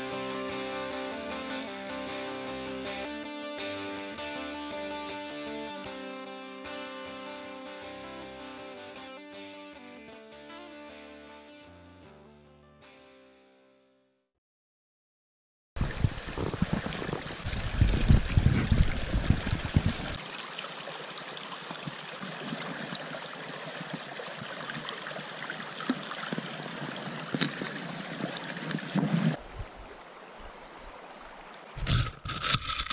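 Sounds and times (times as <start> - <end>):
low rumbling bumps: 15.8 - 20.2
brook running over stones: 15.8 - 32.9.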